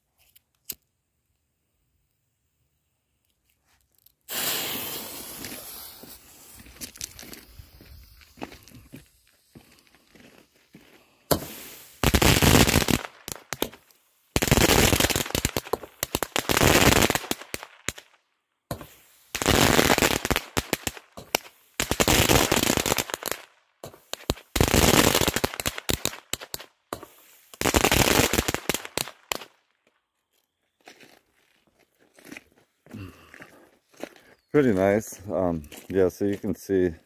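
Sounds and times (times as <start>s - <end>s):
firework blast: 4.3s - 9.2s, 11.3s - 13.8s
firework rapid crackle: 4.3s - 9.6s, 11.3s - 18.1s, 18.7s - 29.6s.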